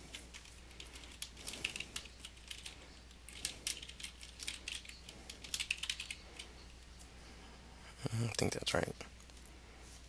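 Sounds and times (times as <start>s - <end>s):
faint low hum: 0.0s - 10.0s
computer keyboard typing: 0.1s - 6.5s.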